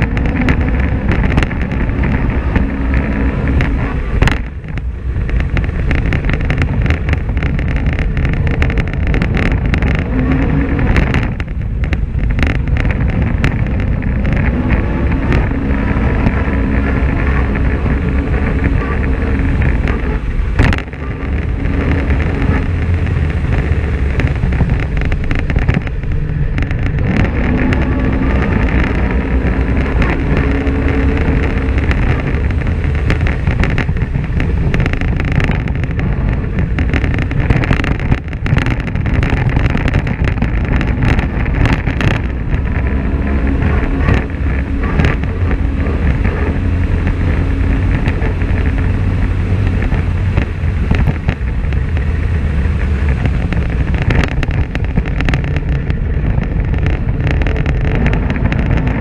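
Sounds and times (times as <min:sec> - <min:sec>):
off-road vehicle engine running: 0:00.0 - 0:59.0
vehicle knocks and rattles: 0:00.0 - 0:59.0.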